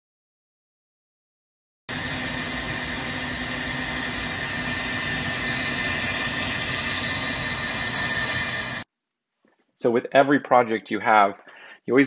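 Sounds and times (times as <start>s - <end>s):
bandsaw running: 1.9s - 8.8s
dust collector drawing air: 1.9s - 8.8s.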